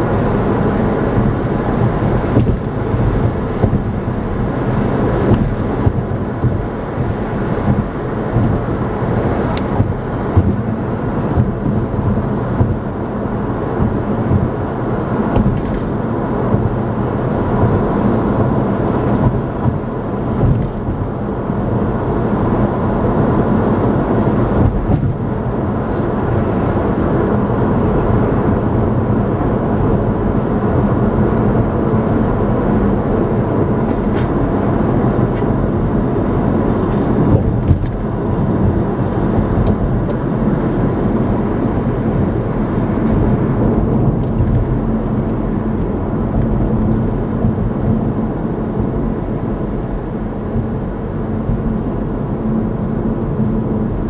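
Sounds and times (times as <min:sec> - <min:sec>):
engine hum: 0:00.0 - 0:54.0
wind noise: 0:00.0 - 0:54.0
car bump: 0:02.3 - 0:04.2, 0:05.0 - 0:08.8, 0:09.4 - 0:13.0, 0:15.2 - 0:16.8, 0:19.2 - 0:21.1, 0:24.6 - 0:25.3, 0:36.8 - 0:40.3.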